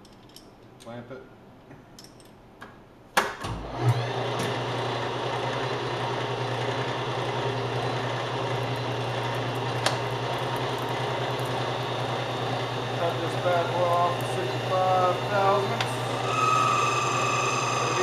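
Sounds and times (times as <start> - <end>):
lathe running hum: 3.6 - 18.0.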